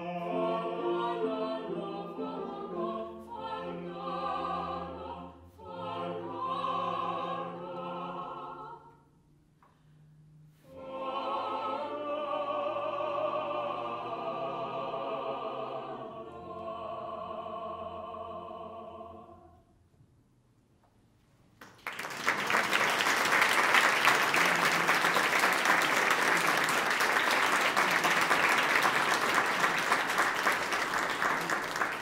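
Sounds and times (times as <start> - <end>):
vocal quartet holding chord: 0.0 - 9.1, 10.6 - 19.7, 23.9 - 32.0
audience applause: 21.6 - 32.0.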